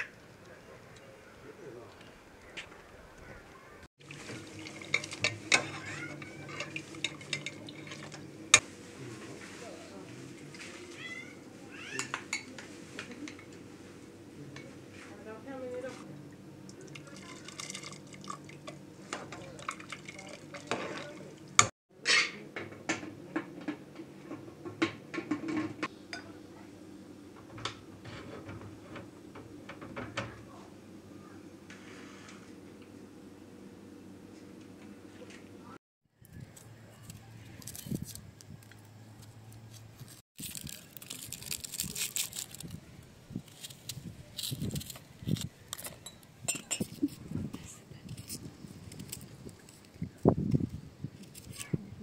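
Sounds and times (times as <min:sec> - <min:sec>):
metal ladle clinking in a pot: 0:04.8 - 0:08.2.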